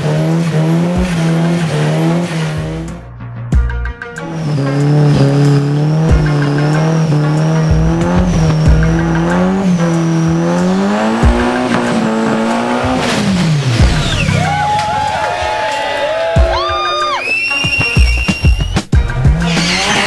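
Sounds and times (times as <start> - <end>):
car engine revving high: 0.0 - 3.0, 4.2 - 14.7, 19.2 - 20.0
tyres squealing: 17.2 - 20.0.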